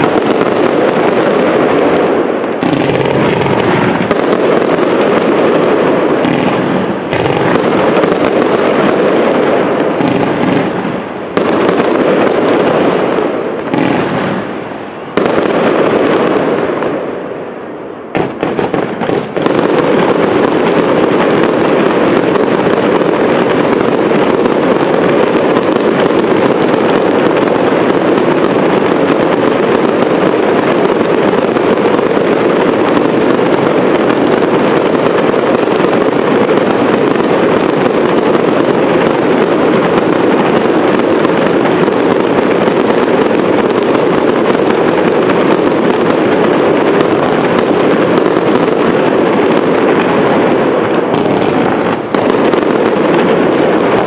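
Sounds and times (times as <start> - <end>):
fireworks crackling and popping: 0.0 - 54.0.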